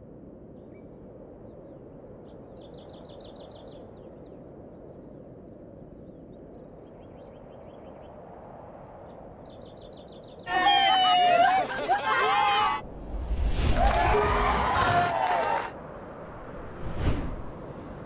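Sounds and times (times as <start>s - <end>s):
steady low rush: 12.8s - 18.0s.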